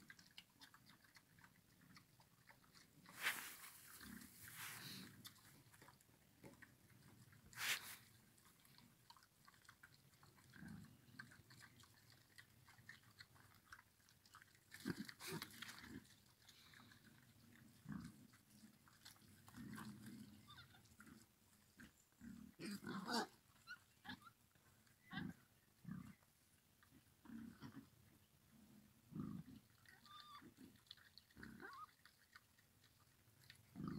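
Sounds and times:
boar chewing and crunching food: 0.0 - 33.9
wild boar grunting: 21.8 - 23.4, 33.7 - 33.9.

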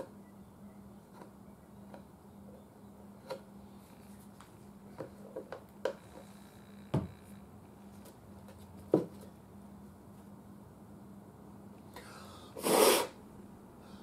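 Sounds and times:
faint steady hum: 0.0 - 14.0
taps and knocks on wooden cabinet: 6.9 - 7.1.

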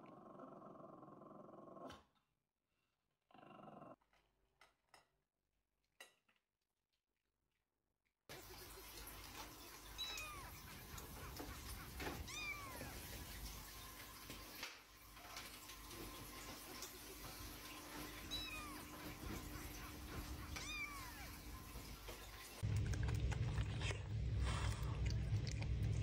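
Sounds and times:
cat meowing: 10.0 - 10.6, 12.0 - 13.1, 18.1 - 19.0, 20.3 - 21.5.

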